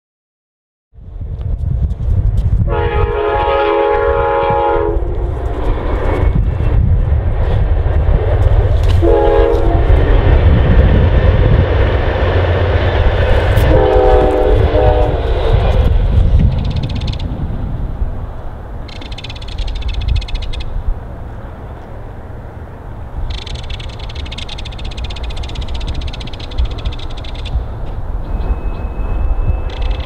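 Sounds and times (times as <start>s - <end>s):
train horn blasts: 2.7s - 5.3s, 8.9s - 10.0s, 13.5s - 15.4s
low rumble: 3.9s - 30.0s.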